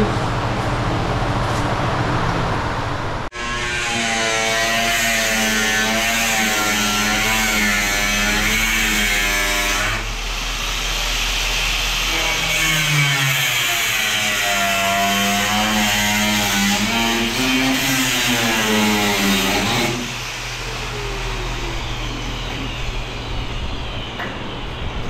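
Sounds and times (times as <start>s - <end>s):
grinder cutting steel: 3.3s - 24.1s.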